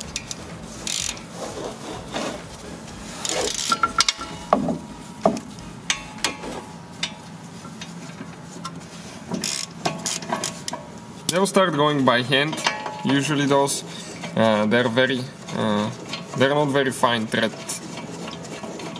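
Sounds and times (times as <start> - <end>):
ratchet wrench clicking: 0.0 - 1.3, 3.2 - 4.4, 9.3 - 10.8.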